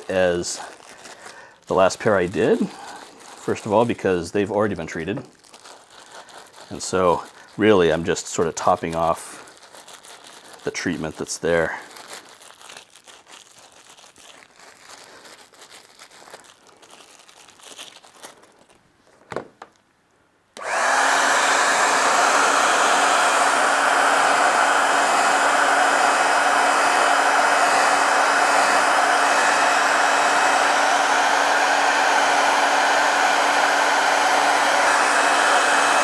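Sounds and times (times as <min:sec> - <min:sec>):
handling rustles: 0:00.0 - 0:19.9
hot-air blower running: 0:02.1 - 0:03.1, 0:20.6 - 0:36.0.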